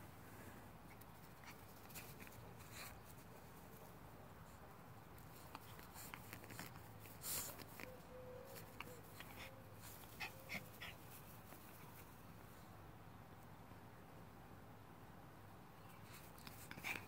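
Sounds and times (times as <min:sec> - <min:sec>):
puppy whimpering softly: 0:07.4 - 0:11.0.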